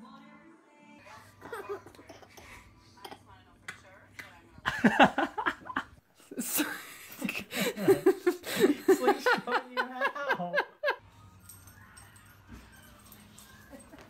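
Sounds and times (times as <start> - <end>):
baby laughing: 1.4 - 2.6.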